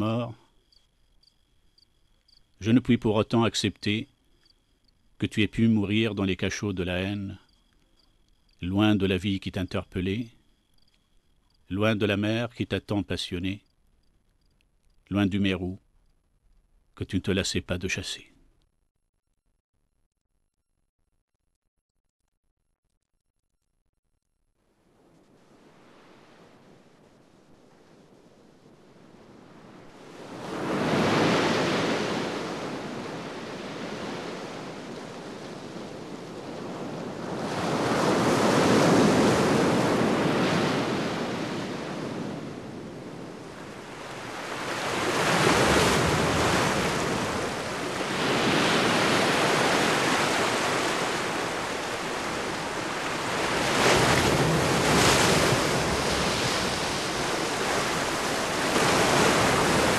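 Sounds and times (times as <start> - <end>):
waves breaking: 25.3 - 59.9.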